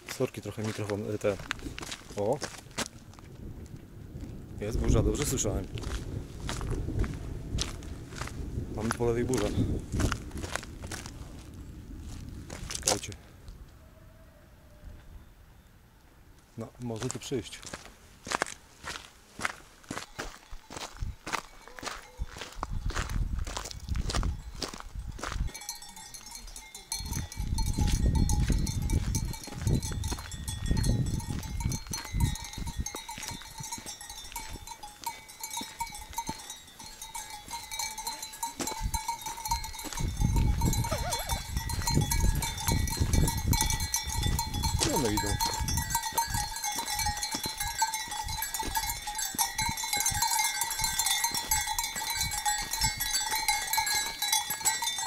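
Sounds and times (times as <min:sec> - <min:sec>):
wind rumbling on microphone: 0:01.2 - 0:15.4, 0:17.6 - 0:55.0
sheep bells ringing: 0:08.8 - 0:09.7, 0:18.9 - 0:55.0
sheep bleating: 0:40.8 - 0:41.5.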